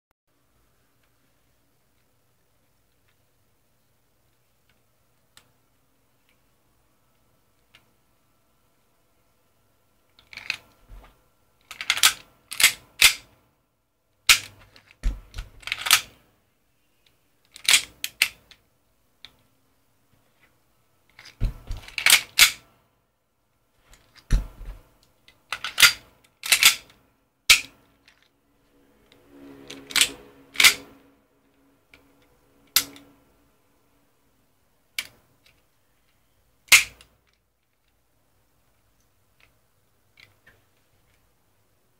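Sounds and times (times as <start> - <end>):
pistol slide metallic clacks: 21.2 - 22.6, 36.7 - 37.1.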